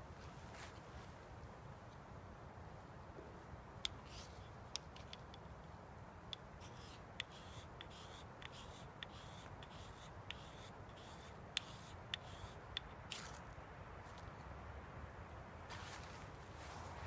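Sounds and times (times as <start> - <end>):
knife scraping wood: 4.0 - 5.2, 6.6 - 13.4.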